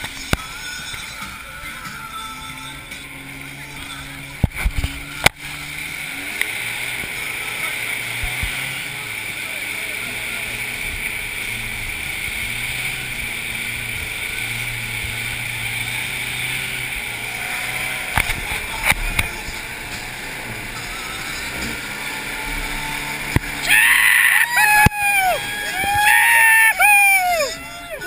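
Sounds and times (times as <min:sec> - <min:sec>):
pickup truck engine running: 0:00.0 - 0:26.1.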